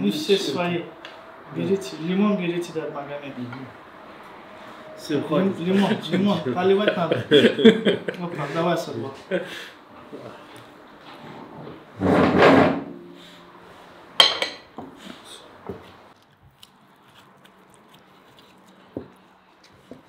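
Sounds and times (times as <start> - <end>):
crockery bump and scrape on table: 11.0 - 13.0
sharp ceramic clink: 14.2 - 14.6.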